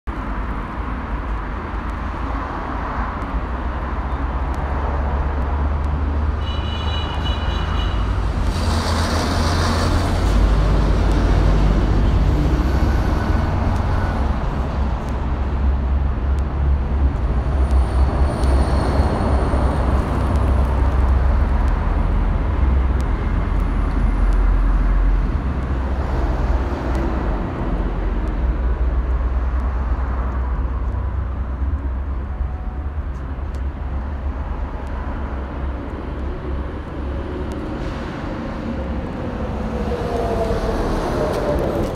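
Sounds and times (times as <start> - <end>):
heavy vehicles rumbling past: 0.1 - 41.9.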